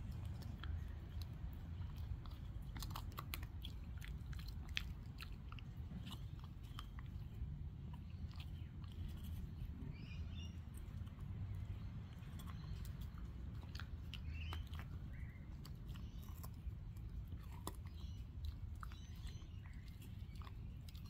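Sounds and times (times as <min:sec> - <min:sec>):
puppy chewing a stick: 0:00.0 - 0:21.0.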